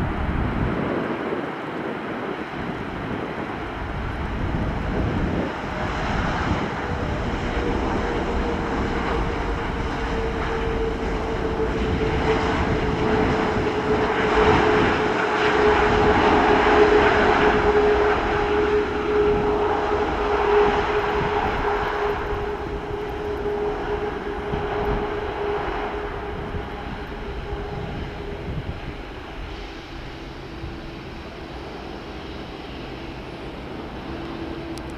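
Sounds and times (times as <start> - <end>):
jet engines whining: 0.0 - 34.9.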